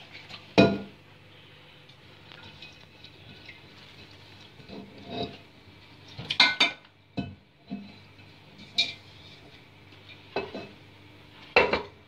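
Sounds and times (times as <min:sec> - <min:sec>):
metal pot clanking against sink: 0:00.5 - 0:01.0, 0:06.2 - 0:07.9, 0:11.6 - 0:12.0.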